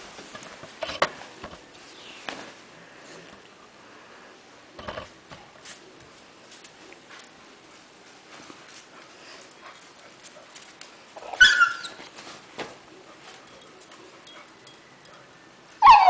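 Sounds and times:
rustling and scuffling: 0.0s - 3.5s, 4.8s - 14.8s
puppy yipping: 11.2s - 12.0s, 15.8s - 16.0s.

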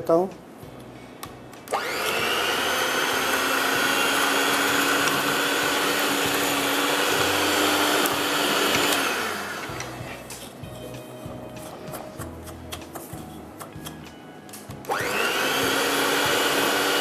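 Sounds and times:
electric hand mixer whining: 1.7s - 10.3s, 14.9s - 17.0s.

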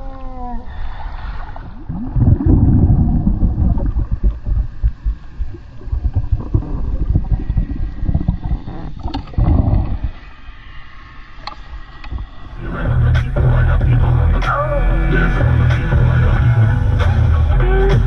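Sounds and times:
underwater crackling and bubbling: 0.0s - 10.6s
underwater rushing rumble: 1.6s - 10.2s.

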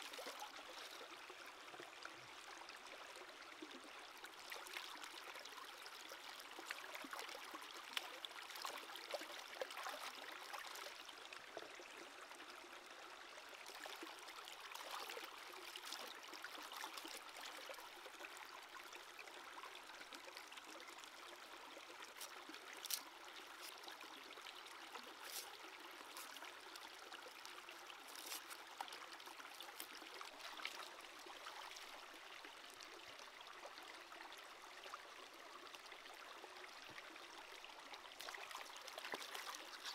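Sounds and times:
stream trickling over rocks: 0.0s - 39.9s
hands rinsing vegetables in water: 39.0s - 39.9s.

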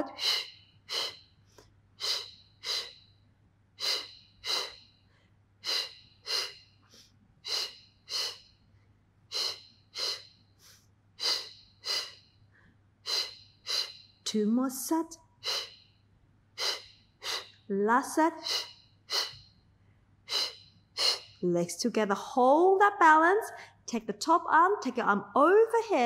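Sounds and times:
short sharp breaths: 0.0s - 3.2s, 3.8s - 8.6s, 9.3s - 14.2s, 18.4s - 21.4s.

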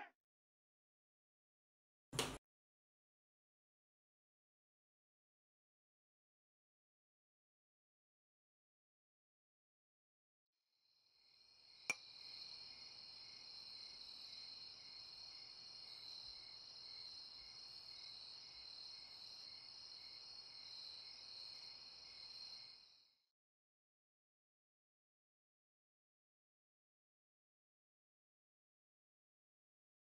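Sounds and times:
crickets chirring: 11.3s - 23.0s.

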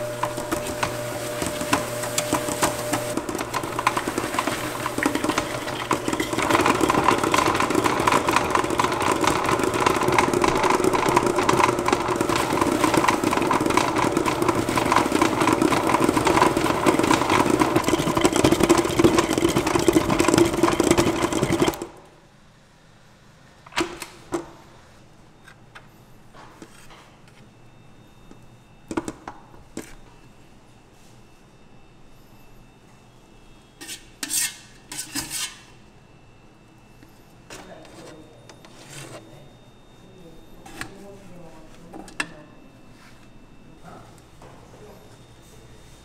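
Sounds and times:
stand mixer motor running: 0.0s - 22.0s.

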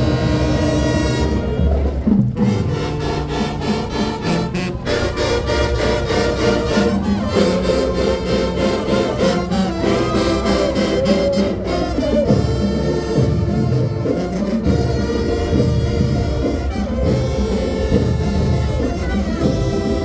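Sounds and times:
brass horns playing: 0.0s - 20.0s
drum strikes: 1.8s - 4.4s.

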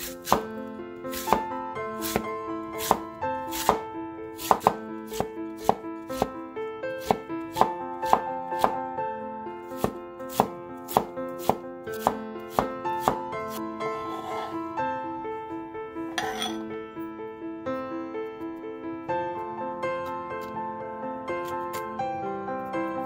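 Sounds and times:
solo piano music: 0.0s - 23.0s
cleaver chopping on wooden board: 0.2s - 0.5s, 1.1s - 3.8s, 4.4s - 6.3s, 7.0s - 8.8s, 9.8s - 13.2s.

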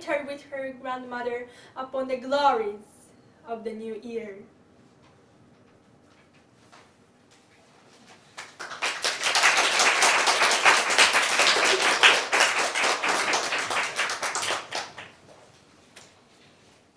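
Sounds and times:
audience applauding: 8.3s - 15.2s.

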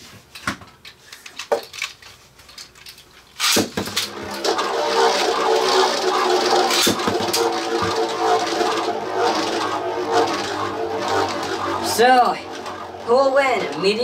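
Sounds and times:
spinning tops whirring: 2.5s - 14.0s
spinning tops launched with a rip: 3.3s - 14.0s.

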